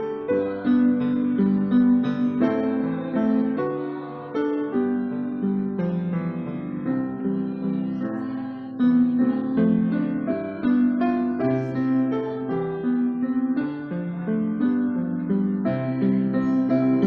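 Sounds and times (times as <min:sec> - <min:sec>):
piano playing a gentle hymn: 0:00.0 - 0:17.0.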